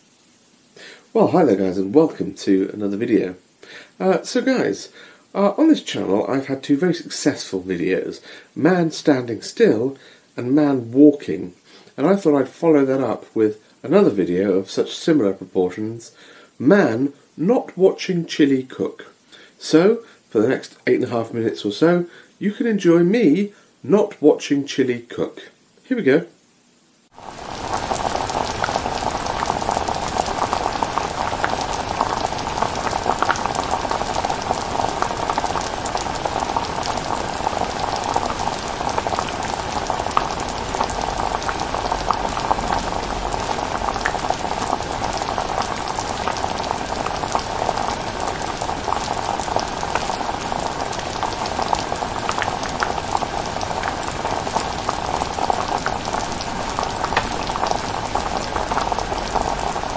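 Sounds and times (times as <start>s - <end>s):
chilli bubbling and popping: 27.1s - 59.9s.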